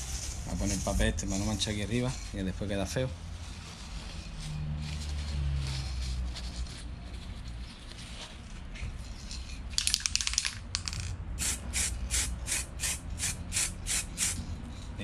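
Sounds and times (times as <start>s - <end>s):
rattle of sharp clicks: 9.7s - 11.2s
aerosol spray hissing: 11.4s - 14.4s.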